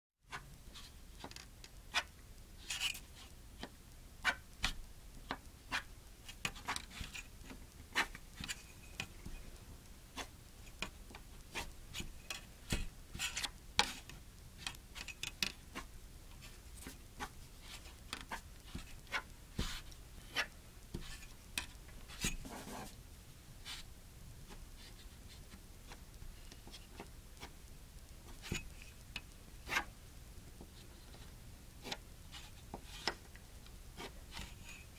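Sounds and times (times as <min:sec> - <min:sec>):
pencil scratching on paper: 0:16.8 - 0:21.3, 0:22.1 - 0:23.0.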